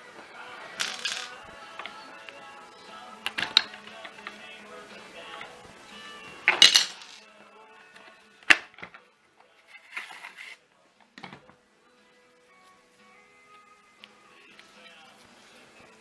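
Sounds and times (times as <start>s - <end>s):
plastic parts scraping: 9.7s - 10.6s.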